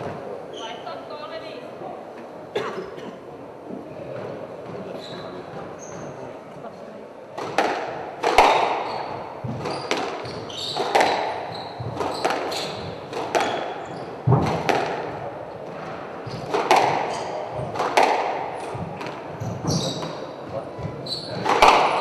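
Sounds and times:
shoes squeaking on wooden floor: 0.0s - 1.0s, 3.7s - 6.5s, 8.4s - 22.0s
squash ball cracking off walls: 7.4s - 20.6s, 21.4s - 22.0s.

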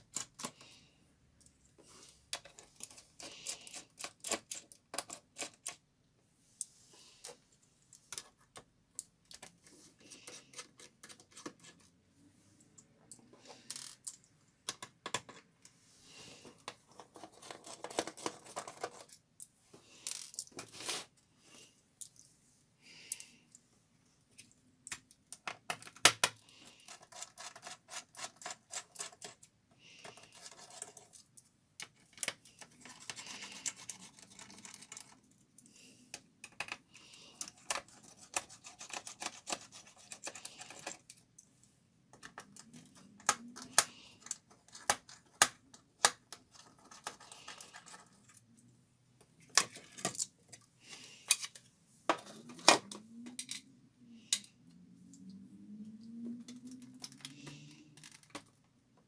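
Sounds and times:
metal and plastic scraping: 16.3s - 19.2s.

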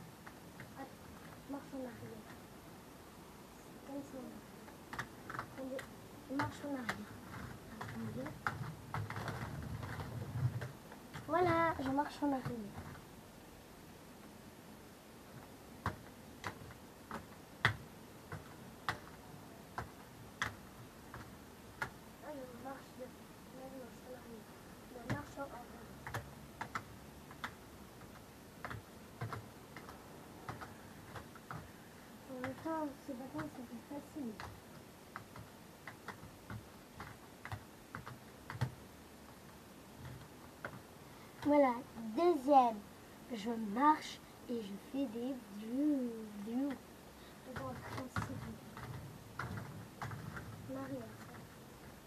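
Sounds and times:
roller skates clacking on floor: 47.5s - 51.4s.

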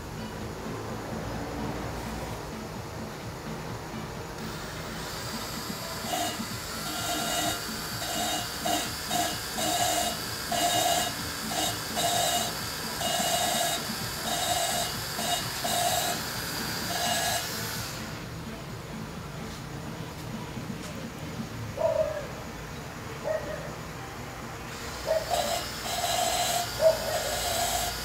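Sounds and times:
valve grinding hiss: 4.3s - 18.3s, 24.7s - 28.0s
cordless drill whining in bursts: 4.4s - 18.3s, 24.7s - 28.0s.

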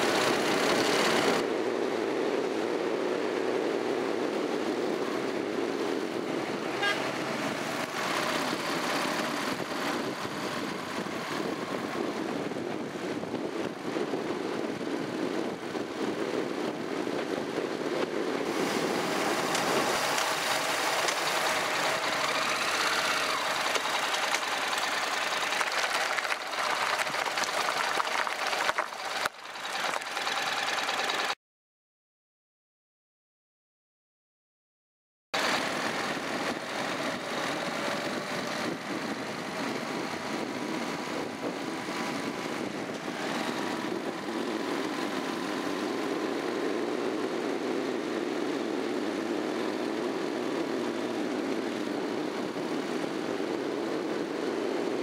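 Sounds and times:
motorcycle engine: 0.0s - 1.5s, 5.0s - 17.3s, 18.0s - 31.4s
wind and road noise: 0.0s - 31.4s, 35.4s - 55.0s.

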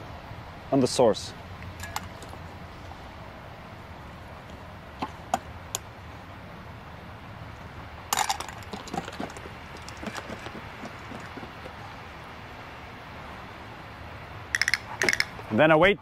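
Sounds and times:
dog eating from metal bowl: 8.2s - 12.0s
sharp clicks: 14.6s - 15.4s.

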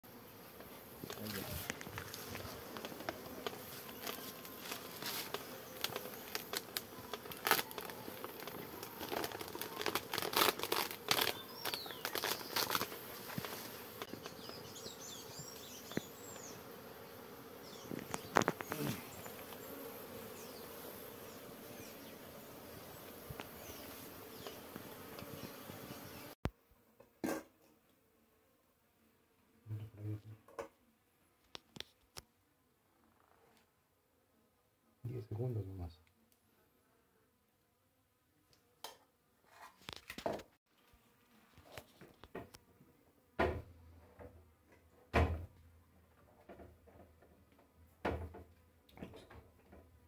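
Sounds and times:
bees buzzing in a swarm: 0.0s - 26.4s.

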